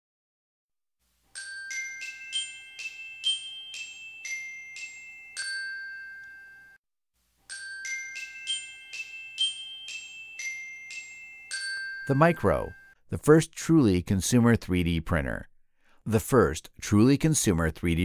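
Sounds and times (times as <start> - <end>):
bell-like jingle: 1.3 - 6.8, 7.5 - 13.0.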